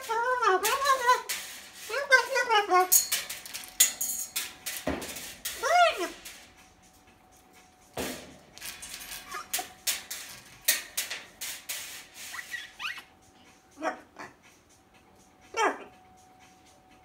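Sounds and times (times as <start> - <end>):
macaw squeaking and chirping: 12.3 - 13.2.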